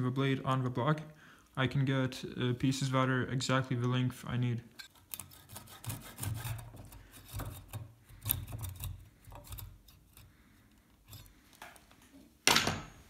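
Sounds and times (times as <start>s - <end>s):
saw cutting wood: 5.0s - 10.2s.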